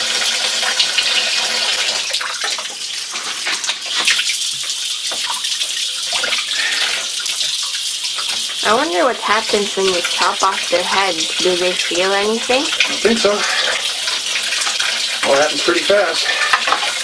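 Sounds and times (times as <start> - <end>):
tap water running into sink: 0.0 - 17.0.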